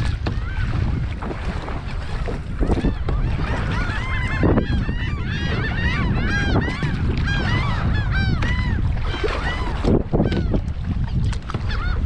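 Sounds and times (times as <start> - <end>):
wind on microphone: 0.0 - 12.0
flock of birds calling: 2.0 - 10.6.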